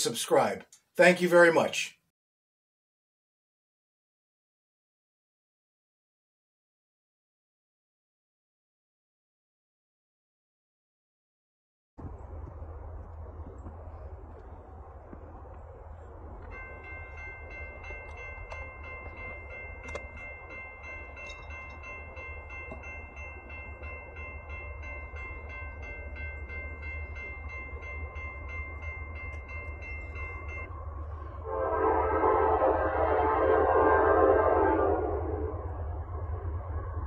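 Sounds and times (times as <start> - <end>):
railroad crossing bell ringing: 15.4 - 32.6
locomotive air horn: 31.4 - 35.6.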